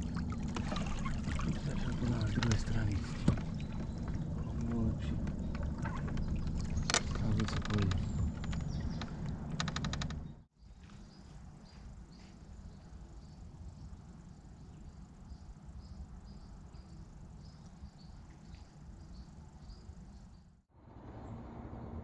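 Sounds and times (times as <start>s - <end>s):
low outdoor rumble: 0.0s - 22.0s
crickets chirping: 11.1s - 20.5s.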